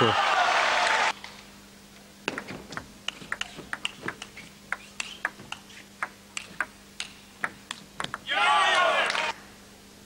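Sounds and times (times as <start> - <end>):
faint steady hum: 0.0 - 10.0
table tennis ball clicks: 2.3 - 8.3.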